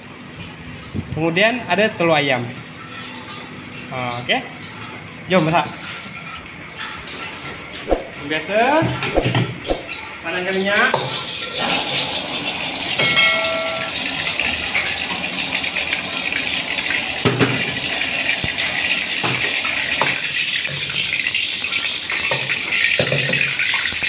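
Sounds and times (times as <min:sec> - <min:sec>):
gas burner hissing: 0:11.1 - 0:23.9.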